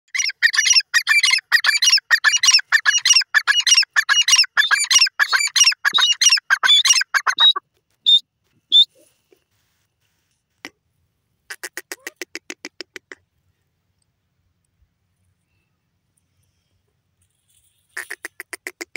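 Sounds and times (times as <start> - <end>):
francolin shrill call: 0.1 - 8.9.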